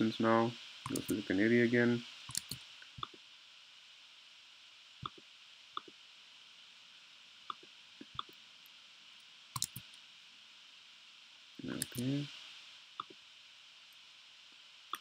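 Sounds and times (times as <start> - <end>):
faint steady hiss: 0.0 - 15.0
laptop clicks: 0.9 - 1.2, 2.3 - 3.2, 9.6 - 9.9.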